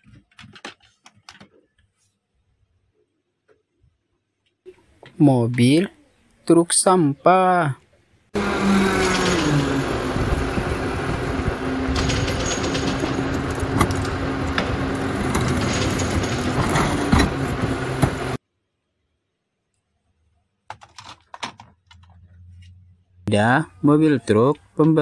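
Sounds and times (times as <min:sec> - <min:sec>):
garbage truck engine hum: 0:08.4 - 0:18.4
loud mechanical noise: 0:08.4 - 0:18.4.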